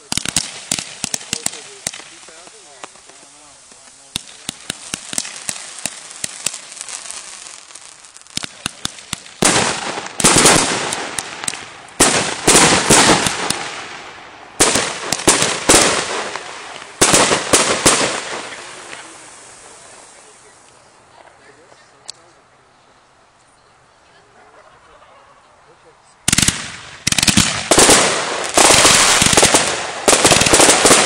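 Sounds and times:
fireworks bangs and popping: 0.0 - 20.7, 26.3 - 31.0.

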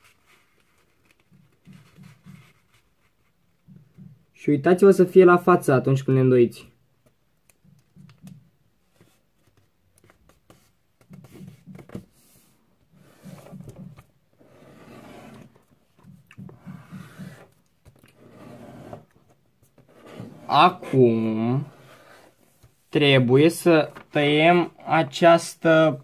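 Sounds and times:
paper rustling and creasing: 0.0 - 3.4, 23.5 - 24.7.

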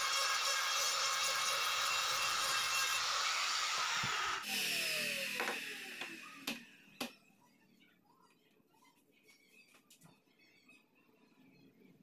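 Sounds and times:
router whining and winding down: 0.0 - 7.1.

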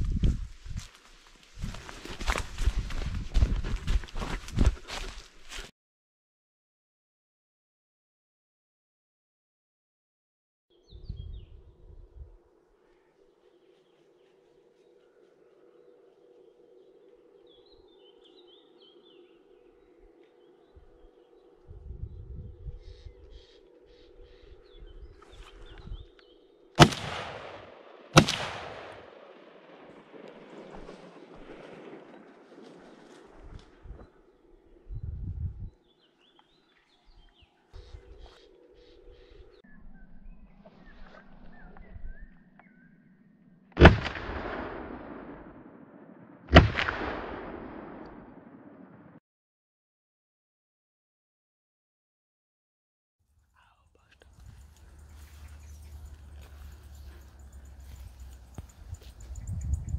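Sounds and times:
gunshots with echo: 26.8 - 33.0, 43.8 - 49.2.

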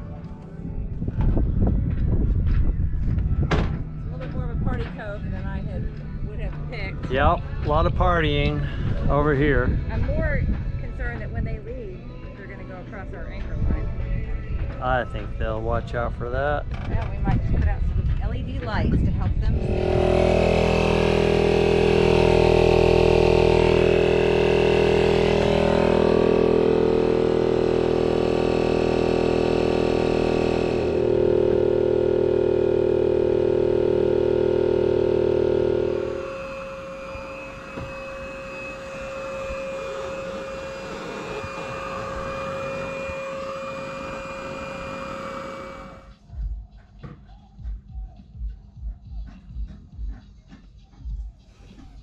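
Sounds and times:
electric air pump droning: 0.0 - 46.4.

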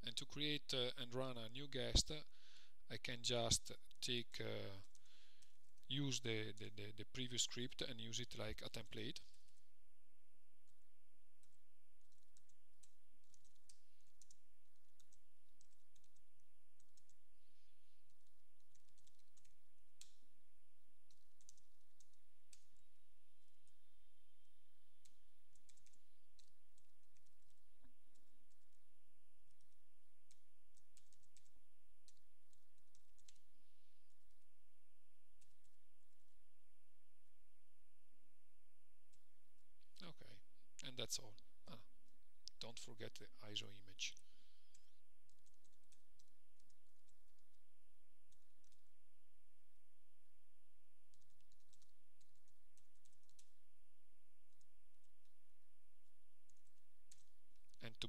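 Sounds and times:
keyboard keys clicking: 11.4 - 16.2, 18.1 - 20.2, 21.1 - 23.8, 25.0 - 28.8, 29.5 - 33.4, 51.1 - 53.6, 56.5 - 57.8.

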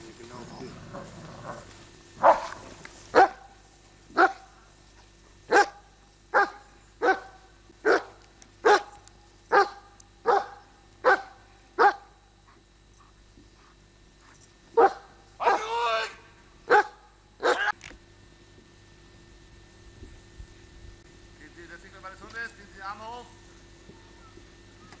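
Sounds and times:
dog barking: 2.2 - 4.6, 5.5 - 12.1, 14.8 - 15.8, 16.7 - 17.8.

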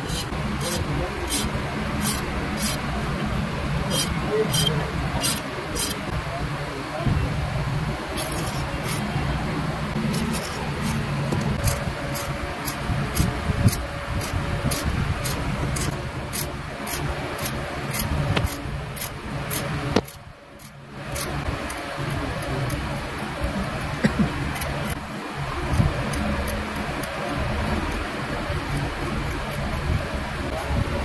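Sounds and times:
hand blade scraping lacquer: 0.0 - 2.8, 3.9 - 6.0, 8.2 - 9.1, 10.0 - 21.8
low machine hum: 0.0 - 31.0.

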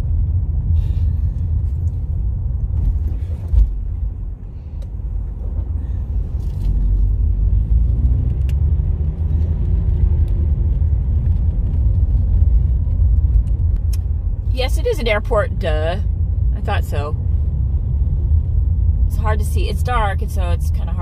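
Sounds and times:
car engine and road noise: 0.0 - 21.0.

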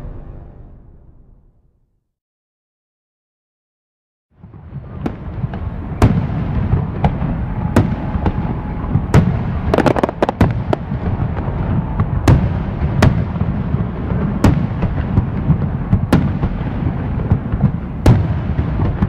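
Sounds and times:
fireworks low rumble: 4.4 - 19.0
fireworks sharp bangs: 4.4 - 19.0.

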